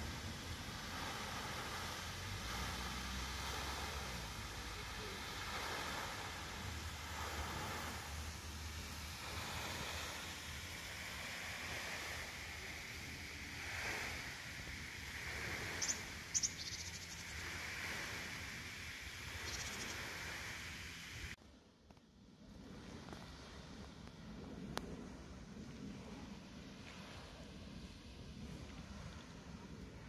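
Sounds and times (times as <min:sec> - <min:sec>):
rushing wind or water: 0:00.0 - 0:30.0
high chirps: 0:15.7 - 0:17.5, 0:19.4 - 0:20.0.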